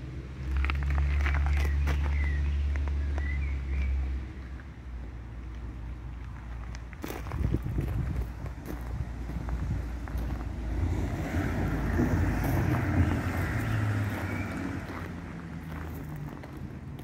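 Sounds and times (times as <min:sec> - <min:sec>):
wind buffeting microphone: 0:07.0 - 0:15.1.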